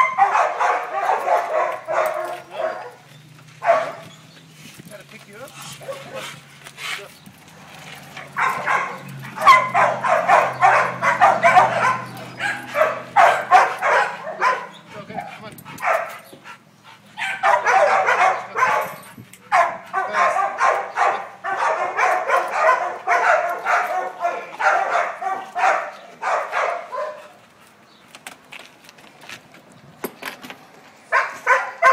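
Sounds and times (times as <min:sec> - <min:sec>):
dog barking: 0:00.0 - 0:04.1, 0:05.8 - 0:06.4, 0:08.2 - 0:14.8, 0:15.8 - 0:16.2, 0:17.2 - 0:27.4, 0:31.1 - 0:31.9.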